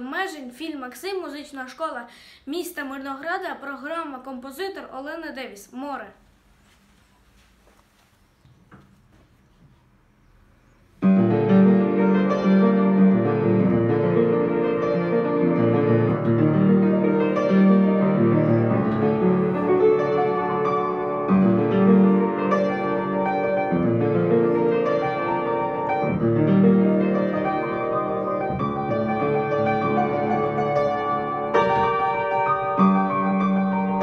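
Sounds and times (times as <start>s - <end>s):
solo piano piece: 11.0s - 34.0s.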